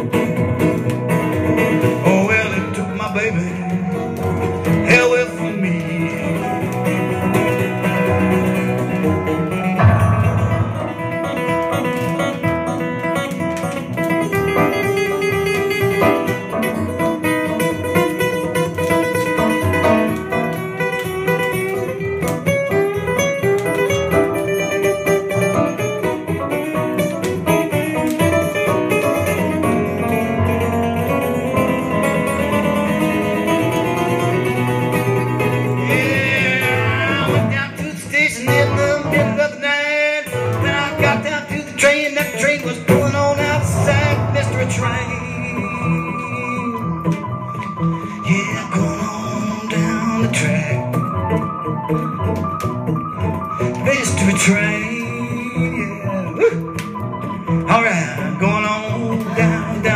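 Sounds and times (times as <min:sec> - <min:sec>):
acoustic guitar strumming: 0:00.0 - 0:59.9
electric keyboard playing: 0:00.0 - 0:59.9
man singing: 0:01.8 - 0:07.9, 0:35.5 - 0:51.5, 0:53.5 - 0:59.9.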